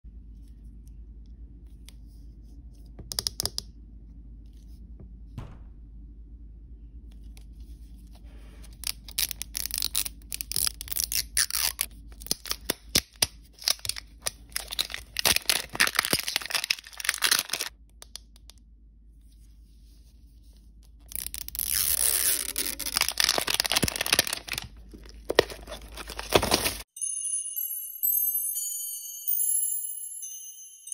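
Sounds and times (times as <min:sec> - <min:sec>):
plastic wrapping crinkling: 0:08.8 - 0:17.7, 0:21.0 - 0:26.9.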